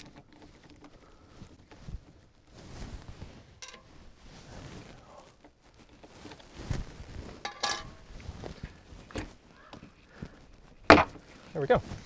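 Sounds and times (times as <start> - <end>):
knocks clicks and scrapes of parts: 0.0 - 2.3, 5.3 - 11.6.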